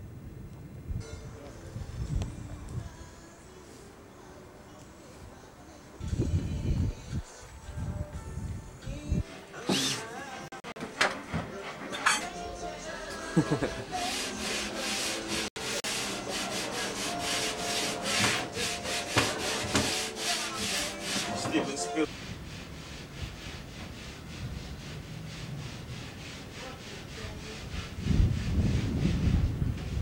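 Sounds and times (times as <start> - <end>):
rasping strokes on plasterboard: 13.4 - 30.0.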